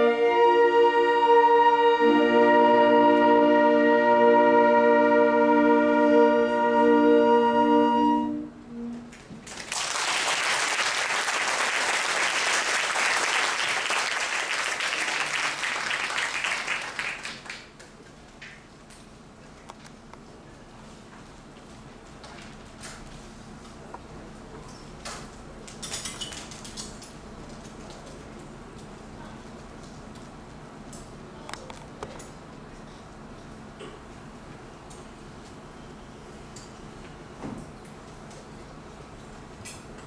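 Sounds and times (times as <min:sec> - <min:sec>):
saxophone ensemble chord: 0:00.0 - 0:09.1
audience applauding: 0:09.4 - 0:17.9.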